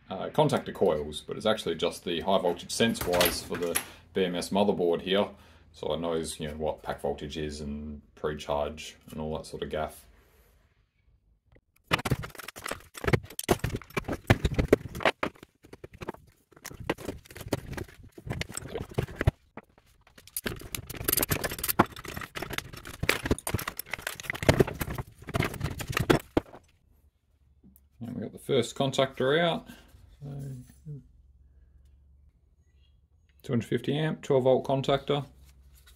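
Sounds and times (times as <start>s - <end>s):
plastic and metal parts clattering: 2.4s - 4.0s, 11.8s - 26.8s.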